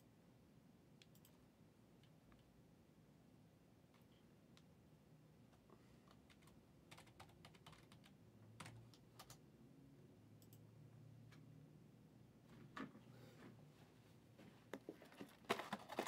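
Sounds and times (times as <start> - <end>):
typing on computer keyboard: 6.0 - 9.4.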